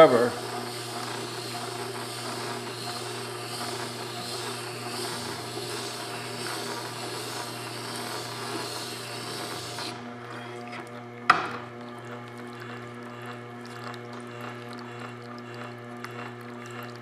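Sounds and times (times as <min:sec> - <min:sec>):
grinder motor humming: 0:00.0 - 0:17.0
steel scraping on grinding stone: 0:00.6 - 0:10.5.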